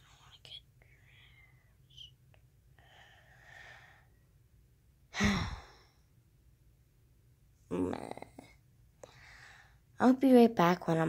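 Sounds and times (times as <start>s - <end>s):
girl breathing in softly: 2.8s - 4.2s, 9.0s - 9.9s
girl sighing: 5.1s - 5.9s.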